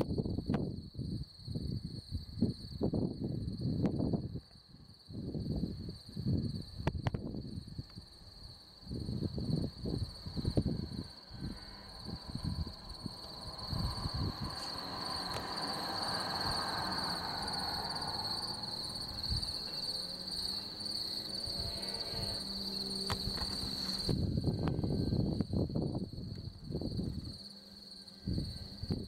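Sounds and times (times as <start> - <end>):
crickets trilling: 0.0 - 29.0
low rumbling noise: 5.1 - 29.0
broad rushing sound: 11.8 - 21.4.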